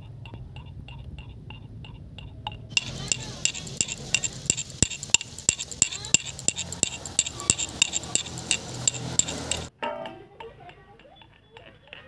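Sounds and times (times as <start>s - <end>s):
low sizzle: 2.5s - 10.0s
hot oil spattering and popping: 2.7s - 9.7s.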